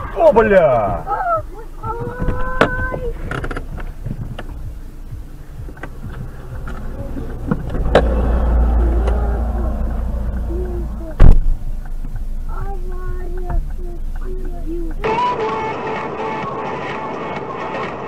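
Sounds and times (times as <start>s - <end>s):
low rumble: 0.9s - 15.0s
loud thump: 5.8s - 9.2s, 9.9s - 11.8s.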